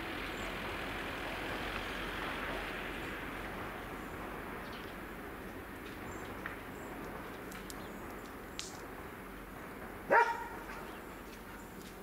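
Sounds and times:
dog barking: 0:10.1 - 0:10.8.

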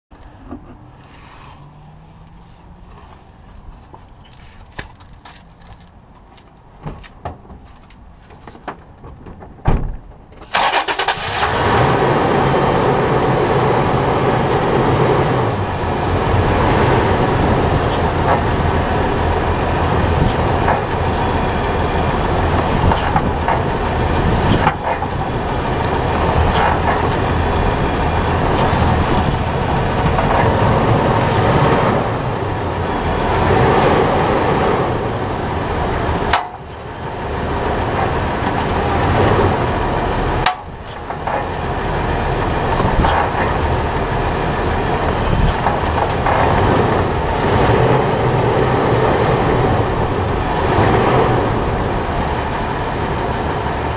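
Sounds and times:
road and wind noise: 0:00.1 - 0:53.9
suspension knocks and clicks: 0:03.5 - 0:10.5, 0:19.8 - 0:31.6, 0:37.8 - 0:48.0.

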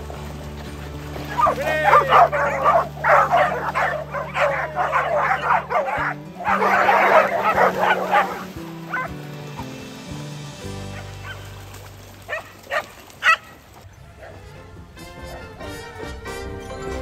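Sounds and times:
pack of dogs barking: 0:01.1 - 0:09.2, 0:10.9 - 0:11.5, 0:12.3 - 0:13.6.

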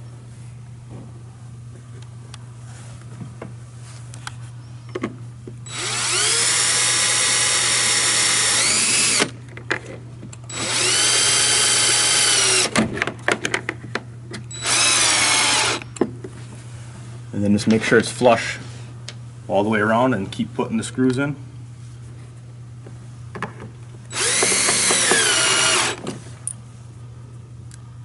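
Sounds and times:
power drill driving screws: 0:05.7 - 0:09.3, 0:10.5 - 0:12.8, 0:14.5 - 0:15.8, 0:24.1 - 0:26.0.

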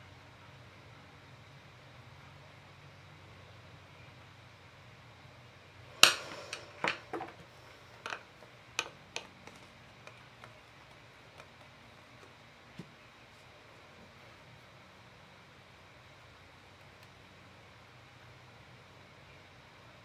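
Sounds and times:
craft tools clacking on tabletop: 0:06.0 - 0:07.4.

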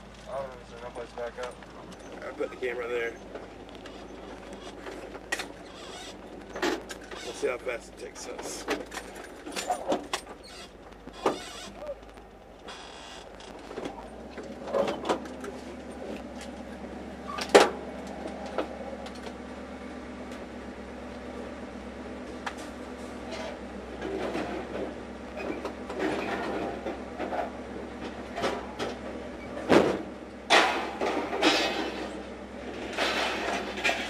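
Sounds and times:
metal rattling and scraping: 0:00.0 - 0:19.4, 0:22.2 - 0:34.0
low engine hum: 0:00.0 - 0:34.0
scrap metal clanking: 0:22.6 - 0:34.0.

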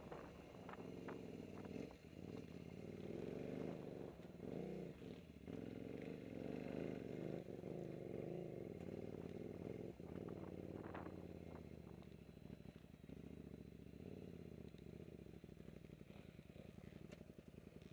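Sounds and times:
motorcycle engine revving: 0:00.2 - 0:11.8.

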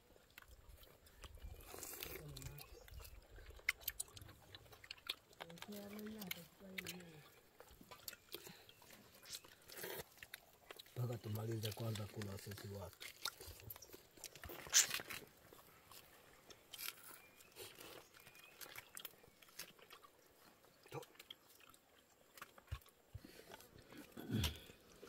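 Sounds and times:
faint chewing and mouth sounds: 0:00.0 - 0:25.0
small clicks and light scrapes: 0:00.3 - 0:20.2.

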